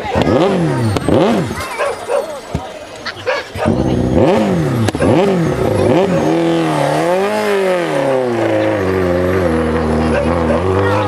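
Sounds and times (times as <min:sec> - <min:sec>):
rally car engine revving: 0:00.0 - 0:02.2, 0:03.5 - 0:11.0
wheels spinning in snow: 0:03.6 - 0:11.0.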